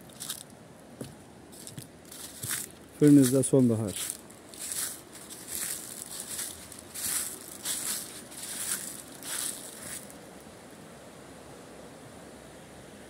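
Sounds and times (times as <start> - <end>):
footsteps crunching dry leaves: 0.0 - 10.2
river water flowing: 0.0 - 13.0.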